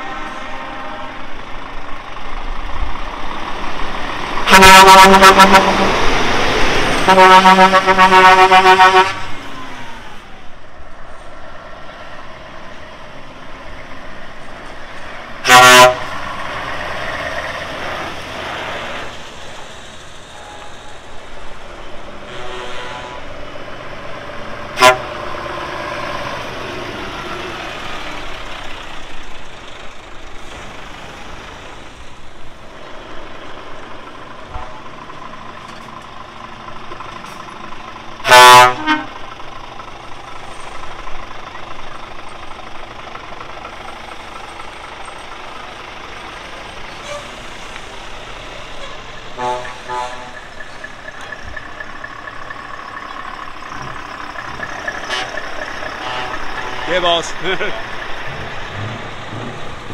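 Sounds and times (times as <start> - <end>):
truck engines running: 0.0 - 59.9
lorry horn blasts: 4.5 - 6.0, 7.1 - 9.3, 15.4 - 16.2, 22.2 - 23.3, 24.8 - 25.2, 38.2 - 39.2, 48.8 - 50.4, 55.0 - 57.2.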